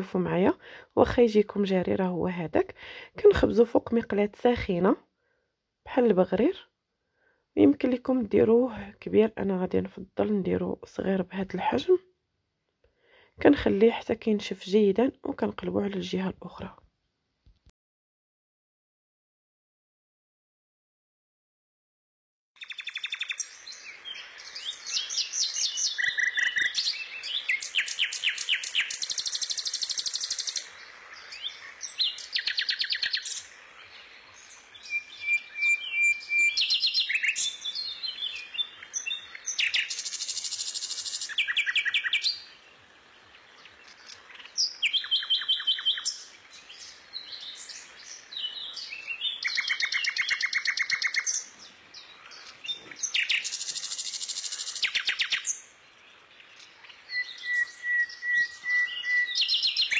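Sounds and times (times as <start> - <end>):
songbird trilling and chirping: 22.6 - 59.9.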